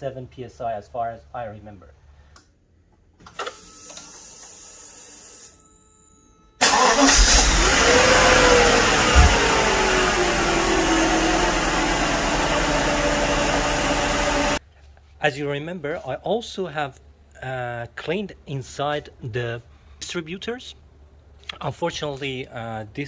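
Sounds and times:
car engine starting and running: 6.6 - 14.6
engine whine: 6.6 - 14.6.

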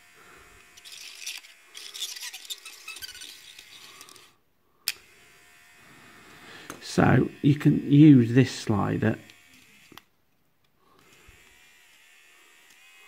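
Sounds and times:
small motor whirring: 0.0 - 8.2, 9.2 - 10.1, 10.9 - 13.0
screwdriver scraping mechanism: 0.6 - 4.3.

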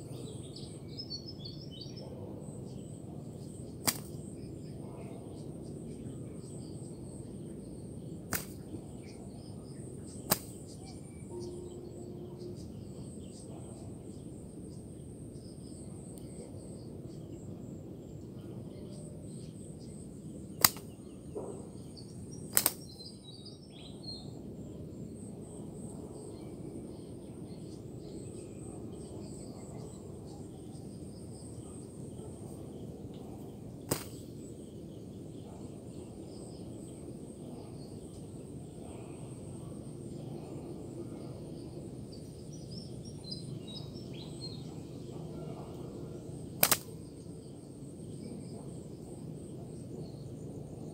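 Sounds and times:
high insect whine: 0.0 - 23.6
low background hum: 0.0 - 50.9
sharp clicks: 3.9 - 4.2, 8.3 - 8.6, 10.3 - 10.6, 20.6 - 20.9, 22.5 - 23.0, 33.9 - 34.2, 46.6 - 46.9.

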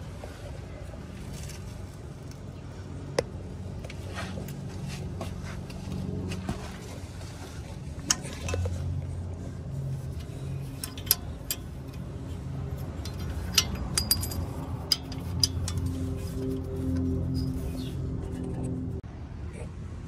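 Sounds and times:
metal hardware clinking: 10.2 - 17.6.

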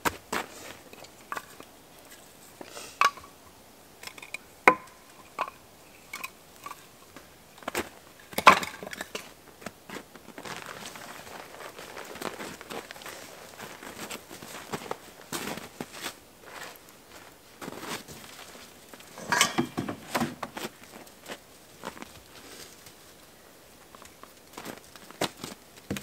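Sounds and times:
firewood sticks knocking: 2.6 - 3.3, 4.0 - 6.8, 8.3 - 9.2, 19.1 - 20.8
footsteps crunching in snow: 9.5 - 23.1.

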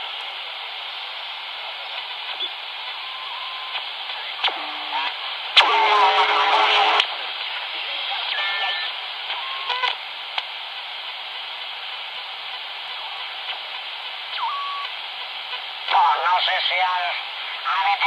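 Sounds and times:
radio static hiss: 0.0 - 18.0
radio signal whistles: 1.8 - 7.0, 8.3 - 10.0, 14.3 - 15.0.

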